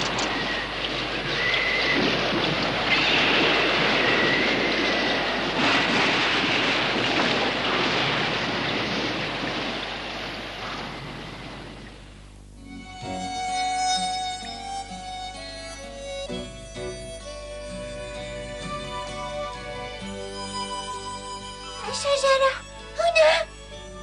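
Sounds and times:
heavy pouring rain: 0.0s - 11.8s
wind: 0.0s - 24.0s.

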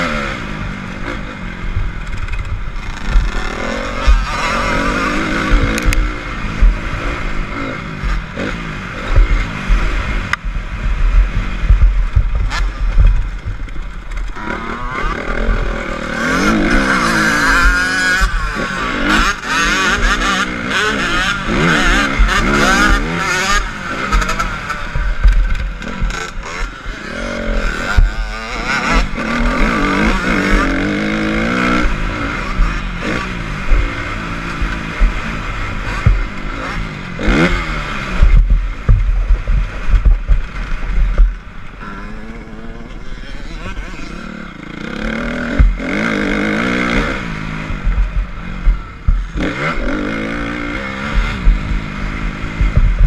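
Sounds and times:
motocross bike engine revving: 0.0s - 53.0s
wind buffeting microphone: 3.9s - 15.8s, 27.8s - 41.8s, 45.3s - 53.0s.

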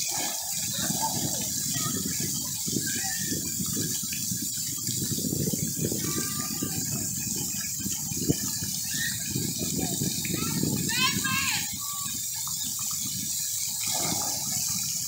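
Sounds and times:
water jets splattering: 0.0s - 15.0s.

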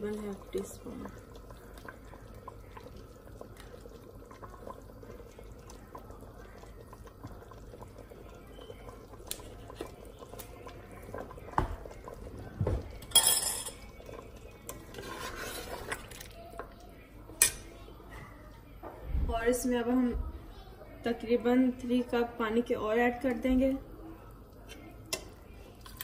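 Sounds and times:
metal clinking against pot: 13.0s - 14.0s
metal ladle stirring in pot: 13.0s - 16.3s
scraping in pot: 14.7s - 16.1s.

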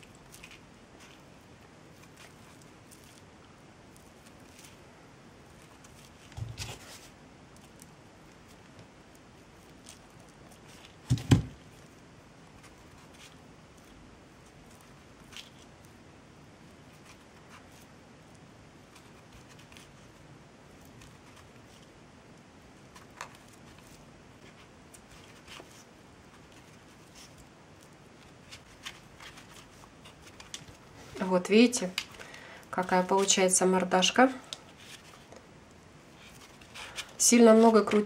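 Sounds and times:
faint handling noise: 16.6s - 38.0s.

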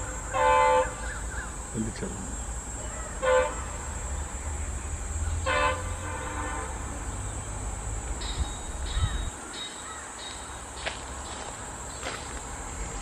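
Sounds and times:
distant train horn: 0.0s - 1.1s, 2.9s - 3.8s, 5.4s - 7.2s
birds chirping: 0.0s - 13.0s.

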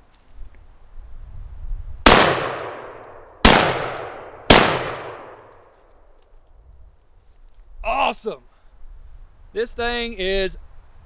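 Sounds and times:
shotgun blasts: 2.0s - 5.5s.

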